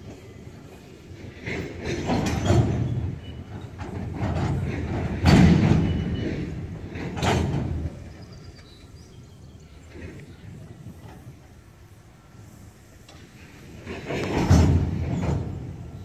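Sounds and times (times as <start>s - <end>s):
freight cars rumbling: 0.0s - 16.0s
loud metallic bangs: 1.4s - 8.1s, 13.7s - 16.0s.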